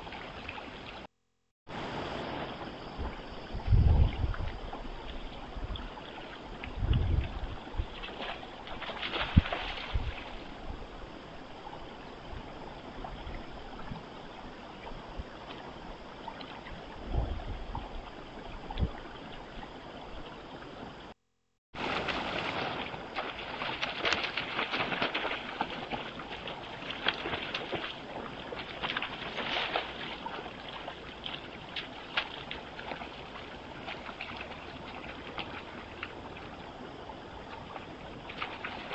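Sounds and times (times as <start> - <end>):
deer splashing through water: 5.0 - 10.6, 21.8 - 36.7, 37.3 - 38.9.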